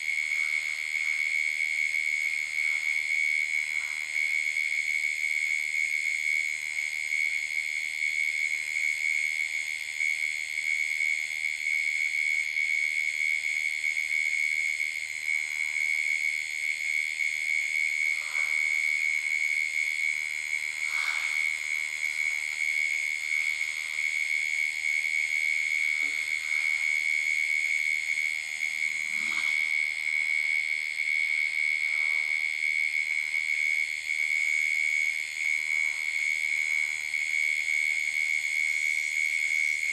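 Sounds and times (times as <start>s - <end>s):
insect high-pitched trill: 15.4s - 32.5s
pulsing insect chirring: 16.9s - 30.0s
brief insect calls: 17.6s - 29.8s.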